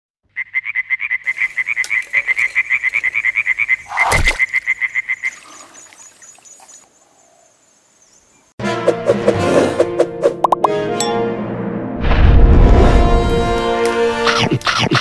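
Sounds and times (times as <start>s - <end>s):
frog croaking: 0.3s - 6.0s
water splash: 3.8s - 4.6s, 5.2s - 6.9s.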